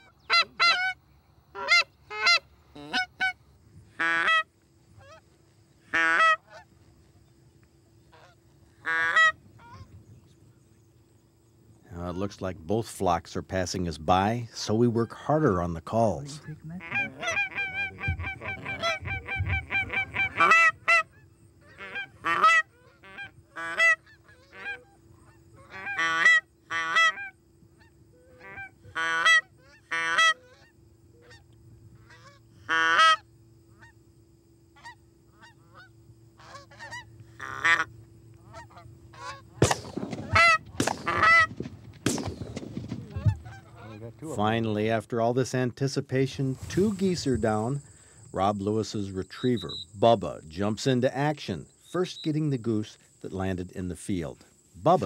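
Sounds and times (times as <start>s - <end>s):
goose calls clucking and honking: 0.0s - 3.4s, 4.0s - 5.2s, 5.9s - 6.7s, 8.1s - 9.9s, 16.3s - 31.4s, 32.0s - 33.2s, 34.8s - 39.6s, 40.2s - 41.6s, 43.0s - 44.2s
shotgun blasts: 39.6s - 43.4s.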